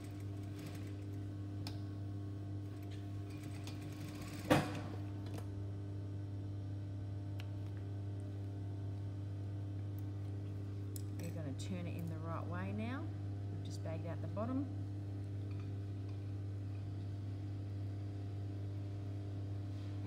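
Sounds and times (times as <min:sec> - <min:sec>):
sewing machine motor humming: 0:00.0 - 0:01.3, 0:02.6 - 0:04.7.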